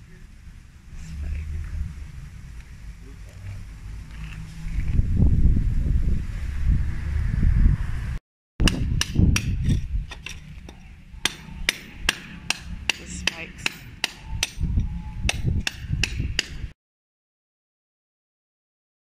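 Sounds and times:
low rumble: 0:00.0 - 0:16.7
hammer blows ringing: 0:08.6 - 0:16.6.

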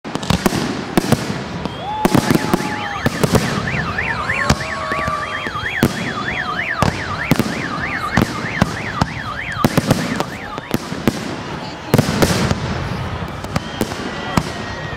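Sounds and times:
fireworks bangs and cracks: 0:00.0 - 0:14.9
fireworks whistling: 0:00.1 - 0:14.9
alarm wailing: 0:02.3 - 0:10.8.

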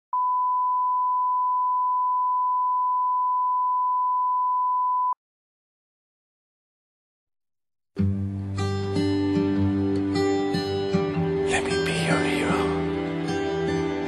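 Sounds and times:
steady pure test tone beep: 0:00.2 - 0:05.2.

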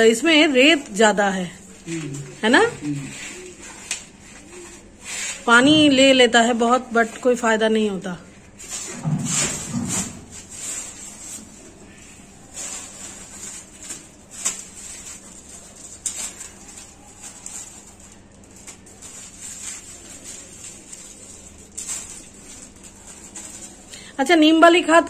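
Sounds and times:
plastic bags rustling and crinkling: 0:00.0 - 0:25.0.

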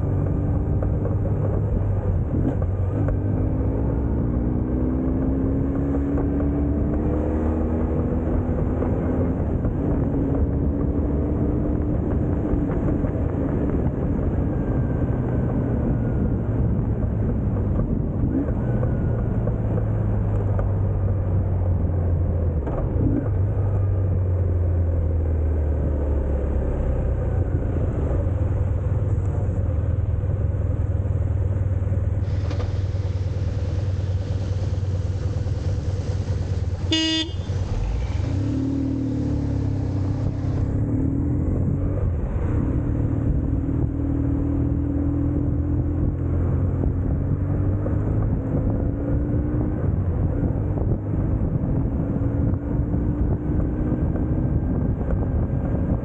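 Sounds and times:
motorcycle engine running: 0:33.0 - 0:43.8
vehicle horn: 0:36.8 - 0:37.6.

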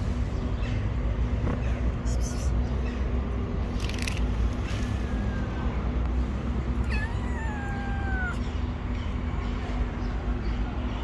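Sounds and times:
kittens meowing: 0:04.9 - 0:05.9, 0:06.8 - 0:08.6.

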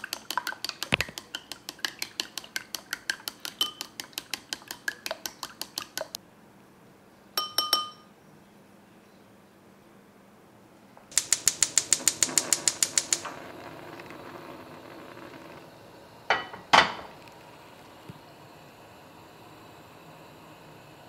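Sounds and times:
frying pan clanking on grate: 0:11.1 - 0:13.4, 0:16.3 - 0:17.2
gas igniter clicking: 0:11.1 - 0:14.4
burning gas hiss: 0:11.1 - 0:21.0.

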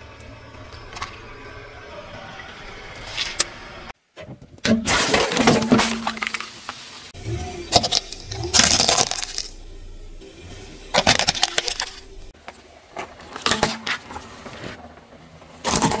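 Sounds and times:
car tyre crushing plastic toys: 0:07.7 - 0:09.6, 0:10.9 - 0:12.0, 0:12.9 - 0:16.0
crunching and cracking plastic: 0:07.7 - 0:09.6.

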